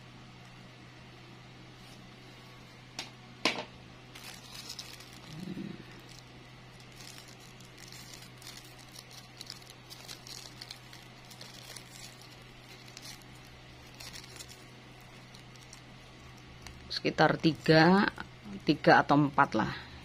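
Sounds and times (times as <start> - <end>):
plastic strip crinkling: 4.1 - 18.7.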